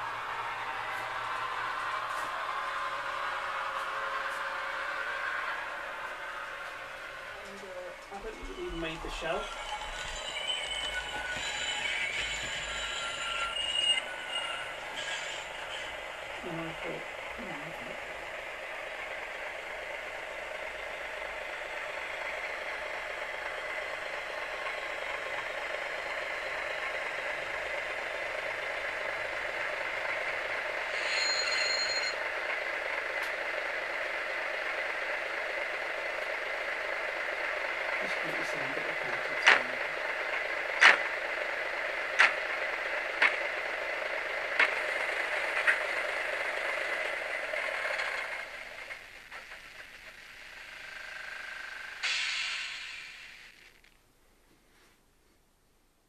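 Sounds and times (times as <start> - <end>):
diesel railcar engine sound: 0.0 - 55.6
sharp clicks: 42.2 - 42.4.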